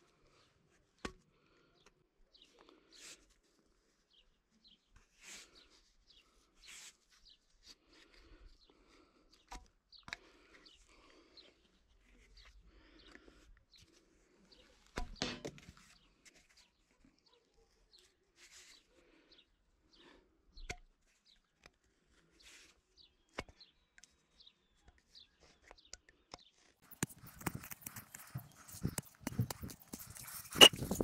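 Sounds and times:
knife scraping plastic pipe: 26.4 - 31.0.

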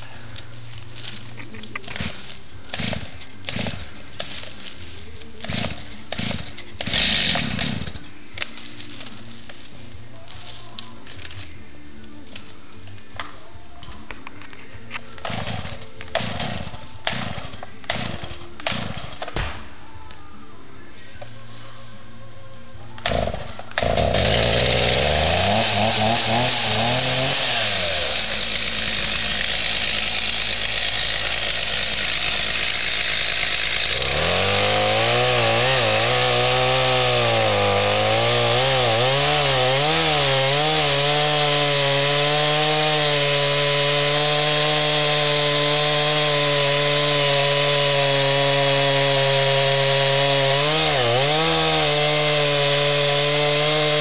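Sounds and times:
chainsaw cutting wood: 1.9 - 4.7, 5.4 - 8.7, 15.2 - 19.3, 23.0 - 54.0.

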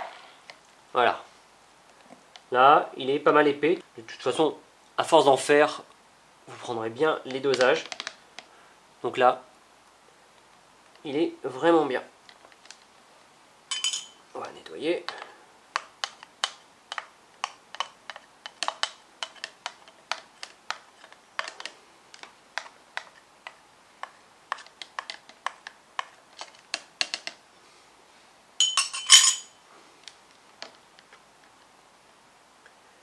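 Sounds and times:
spoon scraping: 13.7 - 14.2, 28.6 - 29.6.

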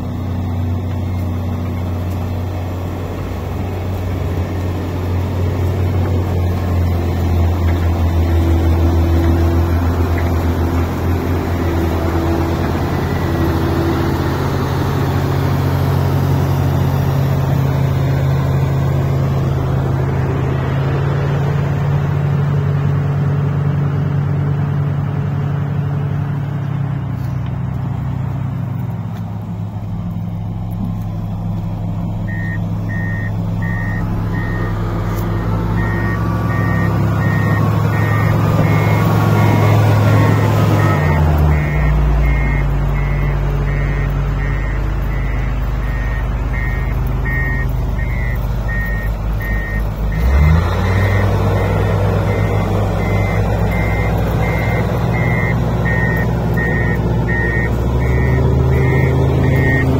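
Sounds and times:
heavy diesel engines running: 0.0 - 59.9
reversing alarm beeping: 32.2 - 59.9.

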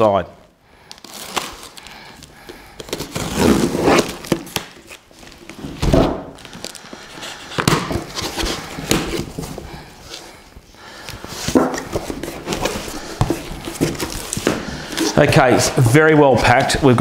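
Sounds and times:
tape and cardboard tearing: 2.8 - 6.1.

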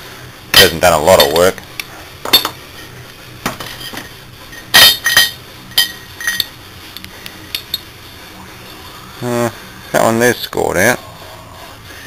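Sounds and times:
metal parts knocking and clinking: 2.2 - 2.6, 3.5 - 6.5.

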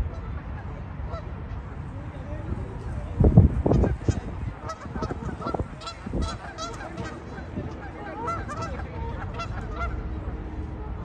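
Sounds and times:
geese honking: 3.7 - 10.2.

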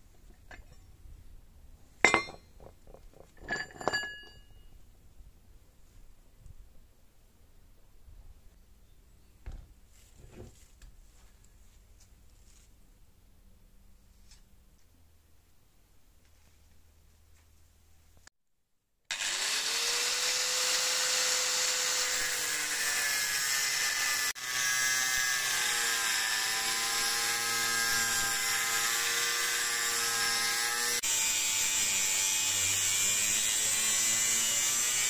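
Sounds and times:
angle grinder cutting steel: 19.1 - 35.0.

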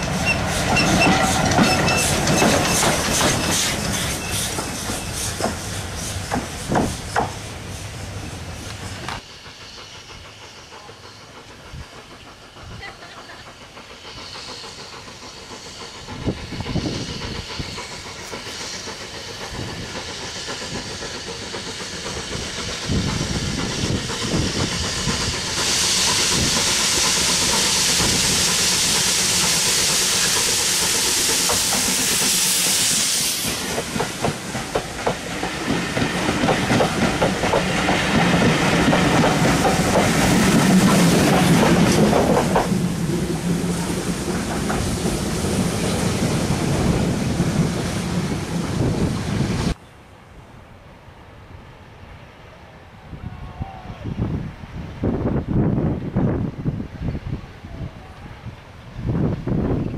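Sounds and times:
wheels clicking on rail joints: 0.0 - 47.7
loud steam hiss: 0.0 - 49.8
train coaches rumbling: 0.0 - 59.9.

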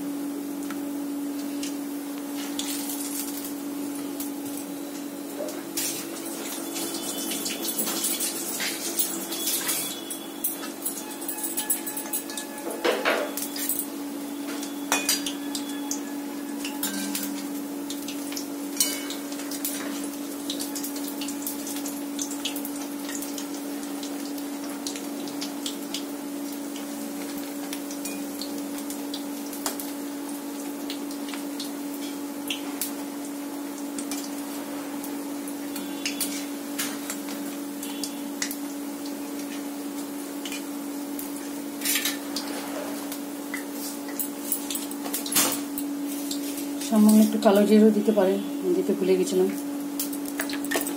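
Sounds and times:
fritters sizzling in oil: 0.0 - 50.9
metal spoon clinking against wok: 7.7 - 12.7.

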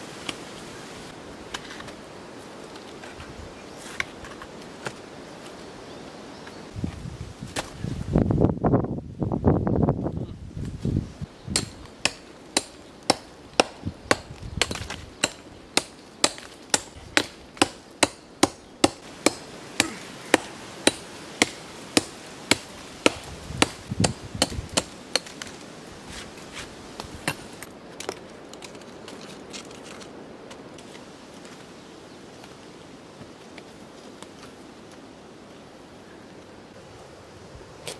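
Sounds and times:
hammer striking rock: 11.5 - 25.4.

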